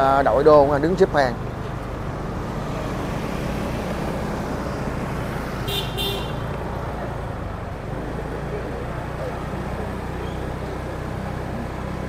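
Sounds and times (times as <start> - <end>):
rumble of passing vehicles: 0.0 - 12.0
car horn double toot: 5.6 - 6.5.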